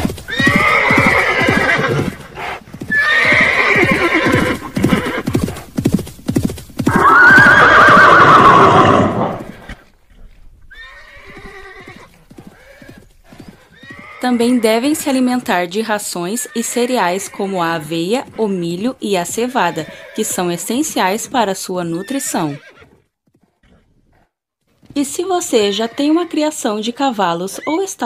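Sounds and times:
horses neighing: 0.0s - 5.8s, 6.9s - 9.9s, 10.7s - 15.2s, 16.2s - 18.6s, 19.3s - 21.1s, 21.8s - 22.8s, 25.2s - 26.6s
clatter of hooves: 0.0s - 15.2s.

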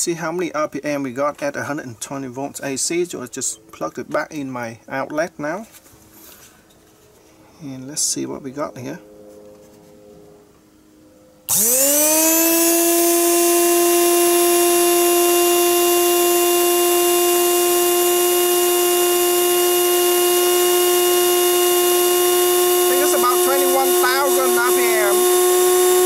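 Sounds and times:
blender motor whining: 11.5s - 26.0s.

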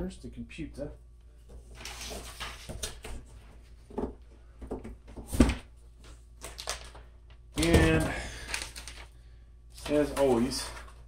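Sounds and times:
cardboard and paper rustling: 1.5s - 4.1s, 7.6s - 9.1s, 9.8s - 11.0s.

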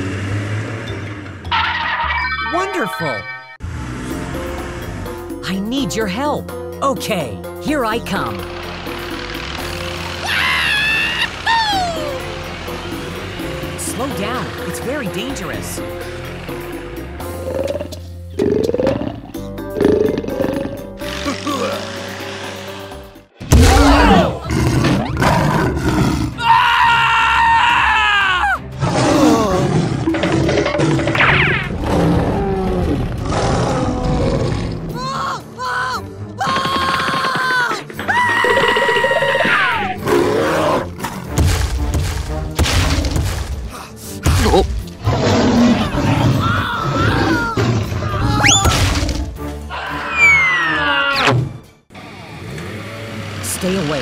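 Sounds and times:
background music: 0.0s - 54.0s
dinosaur roars: 23.5s - 28.0s, 28.8s - 35.2s, 38.4s - 41.3s, 45.0s - 51.3s.

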